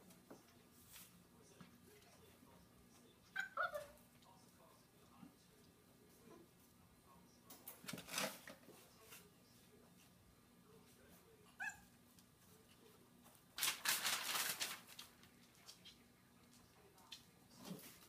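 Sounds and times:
puppy yip: 0:03.4 - 0:03.9, 0:11.6 - 0:11.9.

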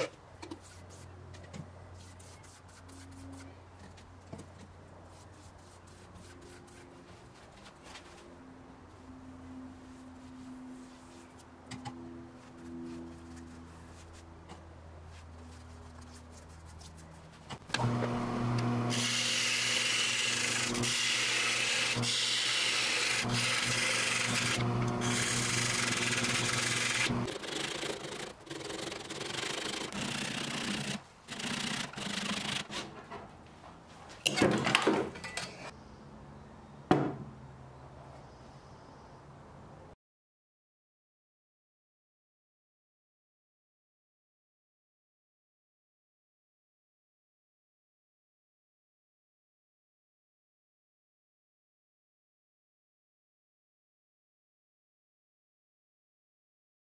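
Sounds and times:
turning tool scraping spinning wood: 0:17.6 - 0:32.9
wood lathe hum: 0:17.7 - 0:32.7
handsaw cutting wood: 0:17.7 - 0:32.8.

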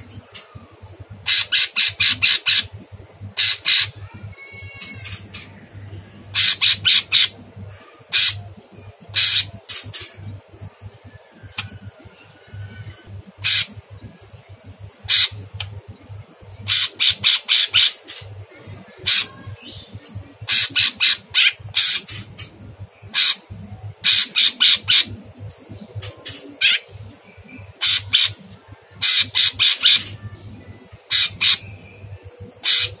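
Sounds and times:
bird giving harsh rasping calls: 0:01.2 - 0:05.5, 0:06.3 - 0:07.4, 0:08.1 - 0:08.5, 0:09.1 - 0:10.1, 0:13.4 - 0:13.8, 0:15.0 - 0:15.6, 0:16.7 - 0:18.2, 0:19.0 - 0:19.4, 0:20.4 - 0:25.2, 0:26.6 - 0:26.9, 0:27.8 - 0:28.4, 0:29.0 - 0:30.1, 0:31.1 - 0:31.8, 0:32.6 - 0:33.0.

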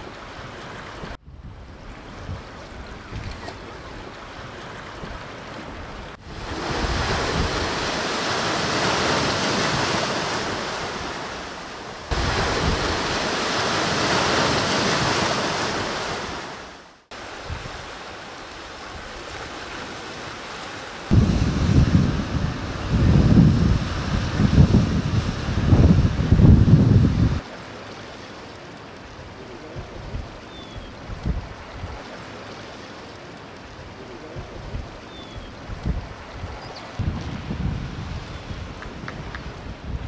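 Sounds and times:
wind on microphone: 0:01.0 - 0:04.0, 0:05.0 - 0:11.5, 0:12.1 - 0:16.4, 0:21.1 - 0:27.4, 0:29.3 - 0:32.1, 0:33.9 - 0:40.0
surf breaking over rocks: 0:06.2 - 0:27.6.

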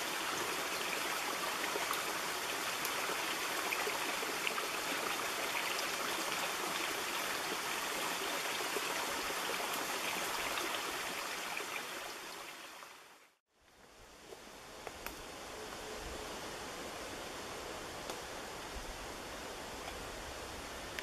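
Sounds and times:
water running over rocks: 0:00.0 - 0:13.4
outdoor hiss: 0:00.0 - 0:21.0.

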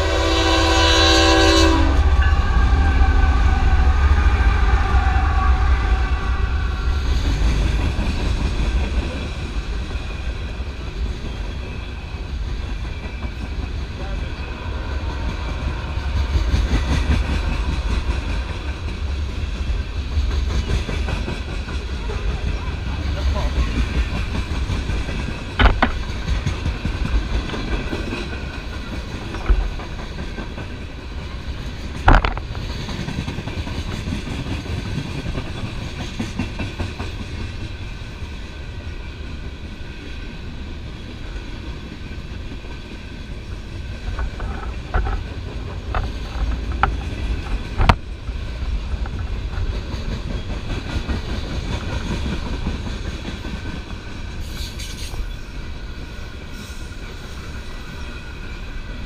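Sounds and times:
freight train rumbling past: 0:00.0 - 0:59.0
wheels clacking over rails: 0:15.2 - 0:37.9.

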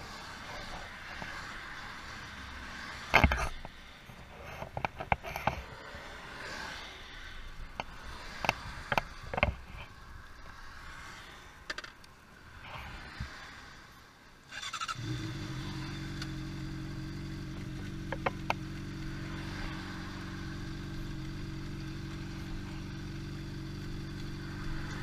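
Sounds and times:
knocks clicks and scrapes: 0:03.1 - 0:05.7, 0:07.8 - 0:09.9.

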